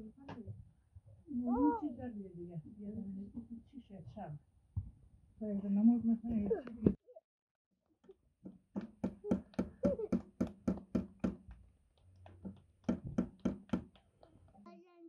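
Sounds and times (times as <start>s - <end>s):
children clapping hands: 8.8s - 14.6s.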